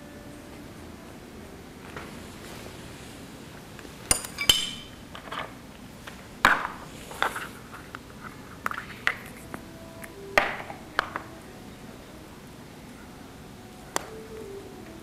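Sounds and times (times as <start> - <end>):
ceramic or glass items clinking: 4.1 - 5.5.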